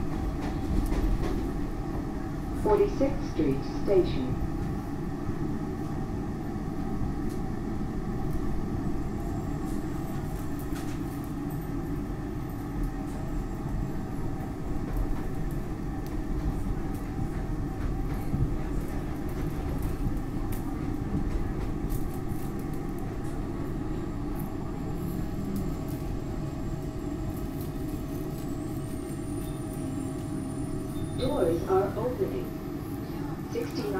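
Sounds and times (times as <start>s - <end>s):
train wheels rumbling on rails: 0.0s - 33.9s
humming tones: 24.0s - 31.4s.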